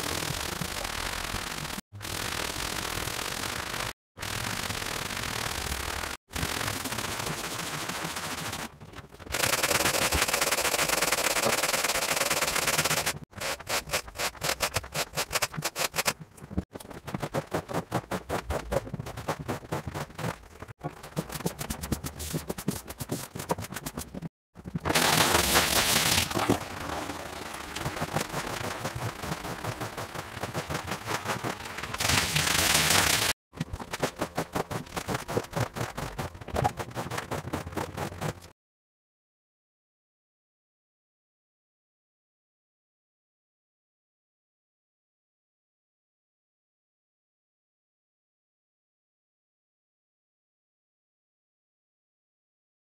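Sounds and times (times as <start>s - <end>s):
water spraying: 24.9s - 33.3s.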